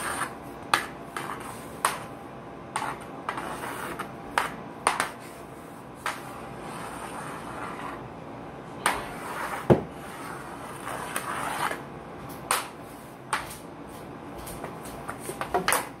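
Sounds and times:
stick scraping on laminate floor: 0.0s - 2.1s, 2.7s - 8.1s, 8.8s - 15.9s
hockey stick knocking ball on floor: 0.2s - 2.1s, 2.8s - 5.3s, 6.0s - 6.3s, 8.8s - 11.8s, 12.4s - 13.6s, 14.4s - 16.0s.

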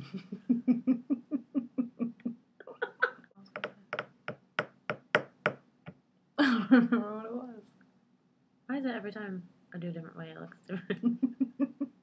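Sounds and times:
women laughing: 0.0s - 3.2s, 6.4s - 7.1s, 10.8s - 12.0s.

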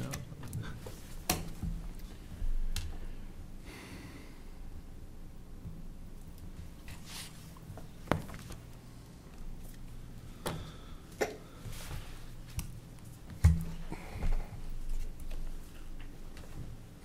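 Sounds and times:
papers being handled: 6.7s - 8.8s.

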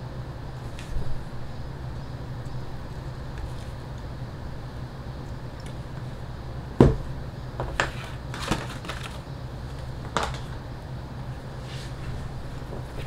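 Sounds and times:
steady low hum: 0.0s - 13.0s
tools knocking on wooden workbench: 6.8s - 7.9s.

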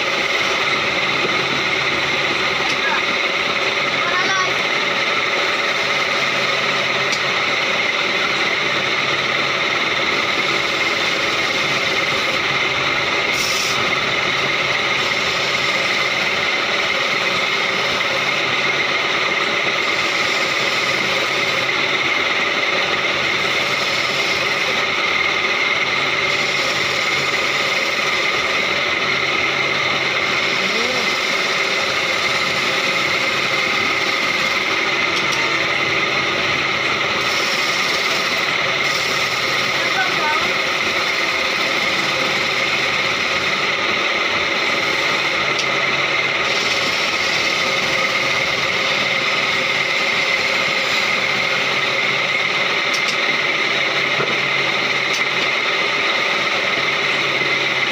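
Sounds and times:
chisel cutting spinning wood: 0.0s - 57.9s
lathe motor whine: 0.0s - 57.9s.

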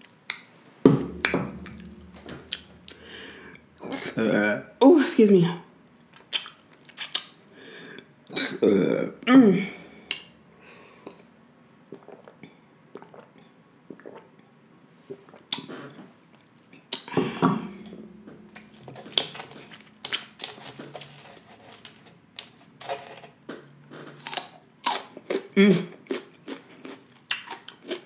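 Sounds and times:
sharp knock: 0.9s - 4.0s, 17.2s - 19.9s.

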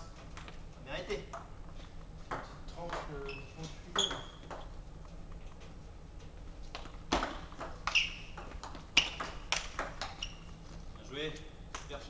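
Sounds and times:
table tennis ball hits: 3.9s - 4.7s, 6.8s - 10.3s.

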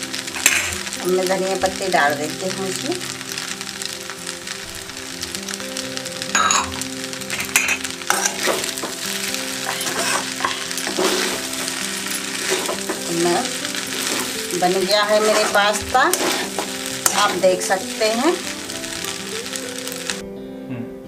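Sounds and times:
pasta sizzling in a pan: 0.0s - 20.2s
spatula scraping a pan: 0.4s - 0.9s, 6.6s - 18.7s.

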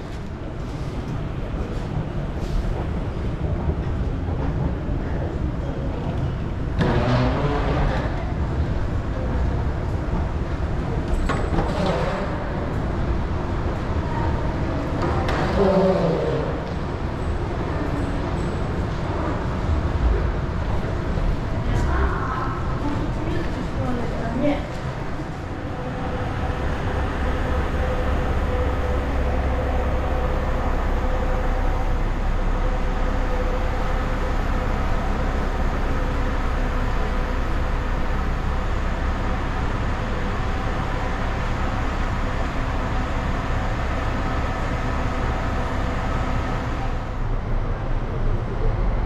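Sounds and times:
low mechanical drone: 0.0s - 49.0s
faint steady hums: 18.9s - 49.0s.

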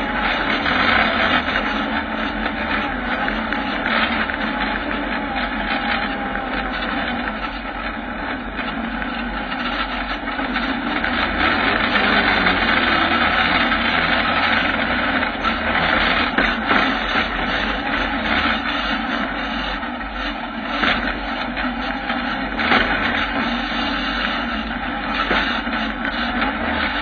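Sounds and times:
motorcycle engine running: 0.0s - 27.0s.

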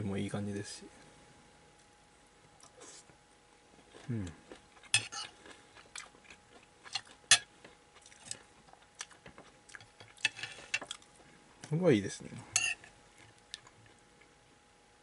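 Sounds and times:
metal utensils clinking on a plate: 12.6s - 12.9s.

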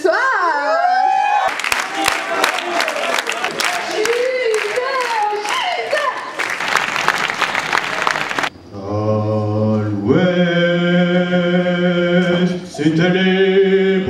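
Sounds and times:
applause: 1.4s - 8.5s.

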